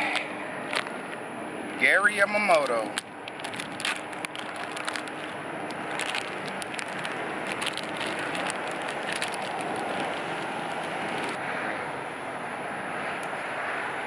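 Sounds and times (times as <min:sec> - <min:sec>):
plastic bag crinkling: 0:00.7 - 0:01.0, 0:02.5 - 0:11.4.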